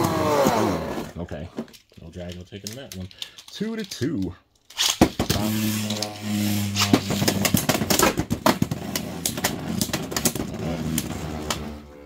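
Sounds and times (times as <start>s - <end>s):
plastic clacks: 1.4s - 6.0s.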